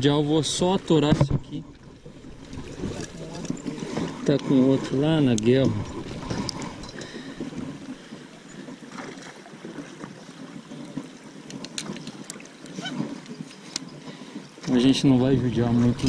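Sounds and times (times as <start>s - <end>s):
river water rushing: 0.0s - 16.0s.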